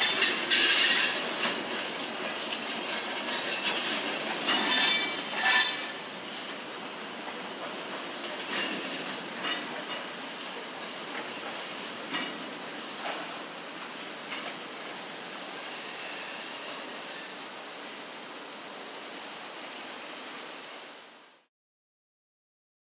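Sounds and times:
train clanks: 0.0s - 18.0s
freight cars rolling on track: 0.0s - 20.7s.

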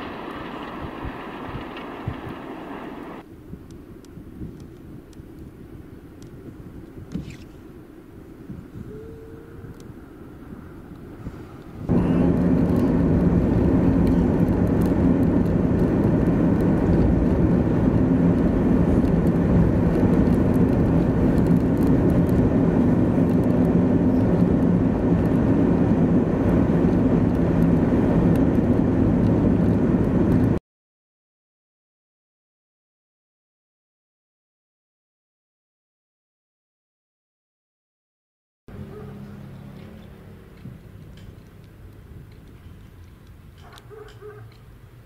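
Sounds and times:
faint approaching truck: 0.0s - 3.2s, 38.7s - 45.0s
vehicle driving on highway: 0.0s - 30.6s, 38.7s - 45.0s.

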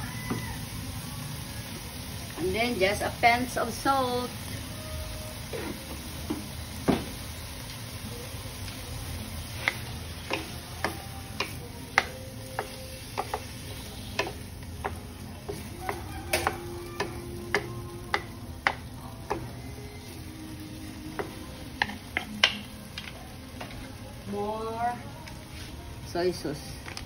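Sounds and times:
wooden utensils clacking on wok: 9.6s - 19.6s, 21.2s - 23.2s.

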